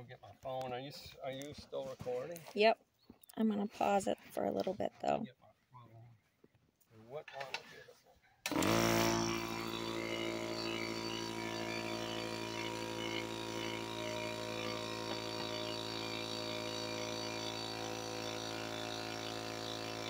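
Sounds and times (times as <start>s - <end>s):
motor droning: 8.5s - 20.0s.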